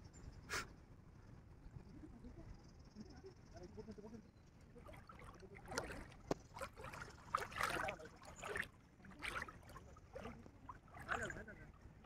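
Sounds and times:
water splashing in river: 4.8s - 11.8s.

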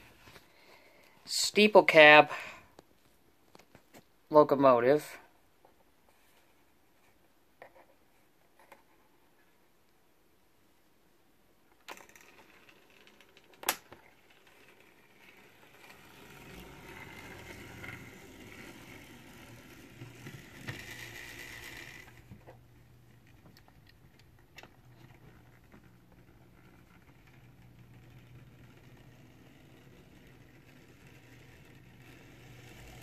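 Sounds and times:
model train motor whirring: 14.5s - 22.3s, 27.2s - 33.0s.

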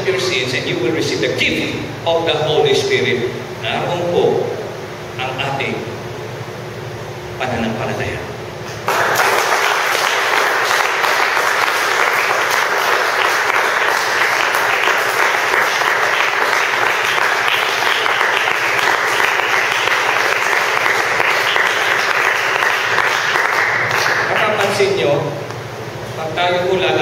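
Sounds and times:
crowd applauding: 8.8s - 25.0s.

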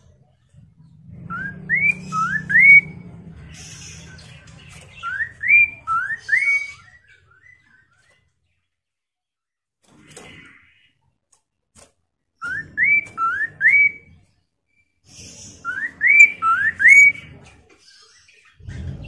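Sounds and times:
bird whistling song: 1.2s - 8.1s, 12.4s - 19.0s.

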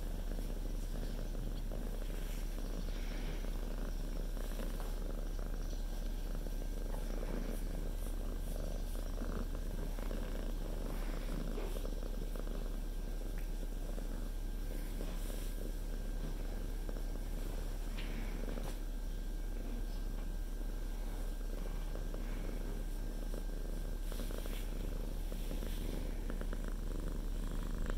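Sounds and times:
cat purring: 0.0s - 27.9s.

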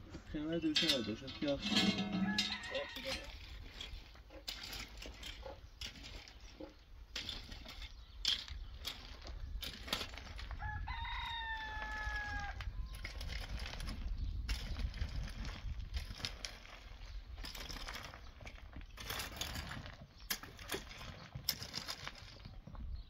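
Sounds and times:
metal rake scraping stony soil: 0.0s - 22.6s
rooster crowing: 1.9s - 3.3s, 10.6s - 13.0s.

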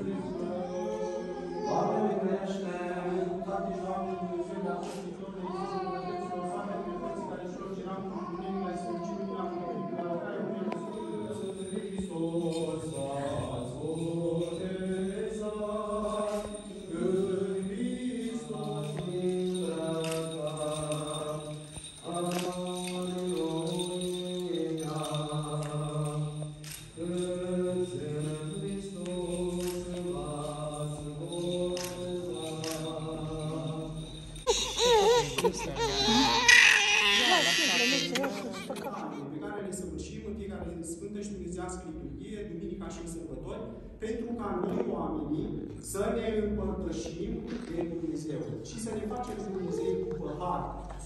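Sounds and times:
male voices chanting: 10.9s - 39.2s.

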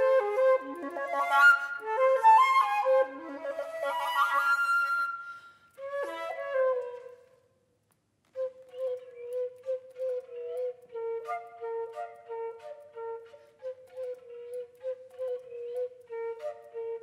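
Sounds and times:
solo flute playing: 0.0s - 7.4s, 8.3s - 17.0s.

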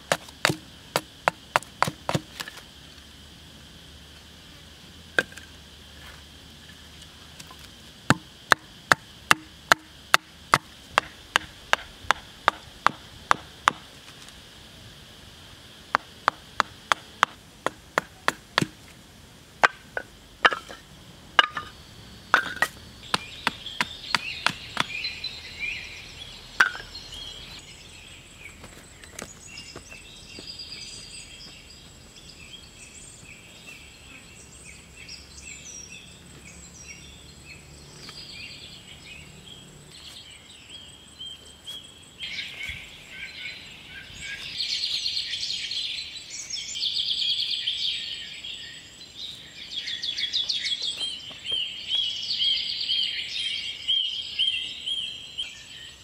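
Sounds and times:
wood being chopped: 0.0s - 2.6s, 8.1s - 13.9s, 15.9s - 18.9s, 19.6s - 20.8s, 22.3s - 25.0s, 26.6s - 26.9s
insects: 0.0s - 56.0s
birdsong: 19.6s - 56.0s.

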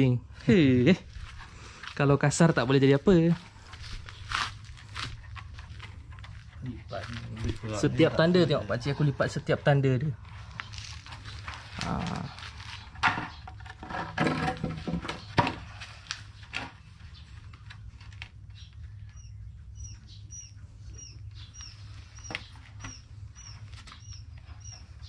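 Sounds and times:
mesh rustling and knocking: 11.0s - 16.9s
animal squeaking: 19.1s - 25.0s.

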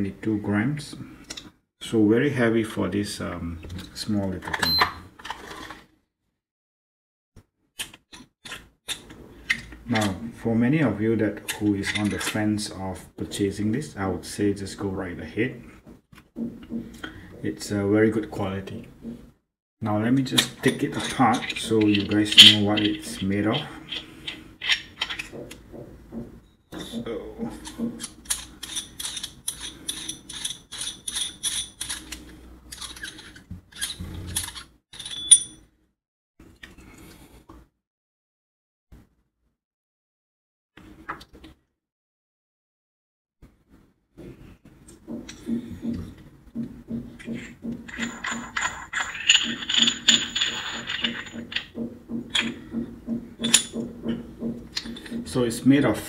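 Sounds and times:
metal parts clinking on table: 20.4s - 25.2s, 28.0s - 35.7s, 47.9s - 51.8s.

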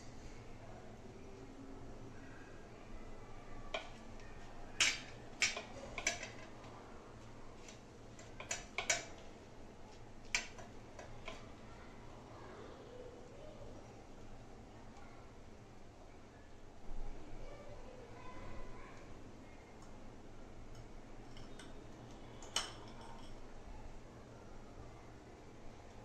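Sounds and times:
hands handling food on steel plate: 4.8s - 6.6s.

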